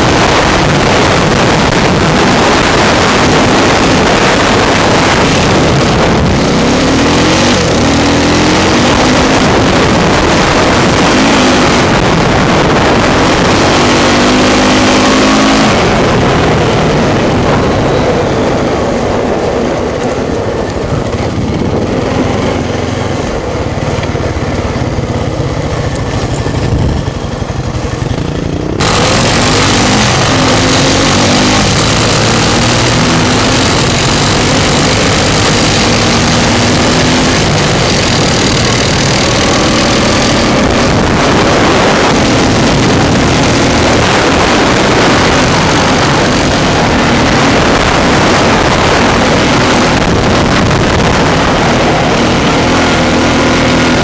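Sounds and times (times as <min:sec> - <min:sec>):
atv engine revving: 0:00.0 - 0:54.0
wind rush on microphone: 0:00.0 - 0:54.0.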